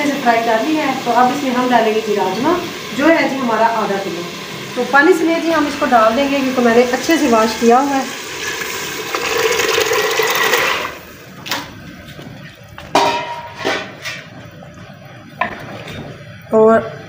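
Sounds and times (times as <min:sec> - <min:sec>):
water pouring and splashing: 0:06.9 - 0:16.2.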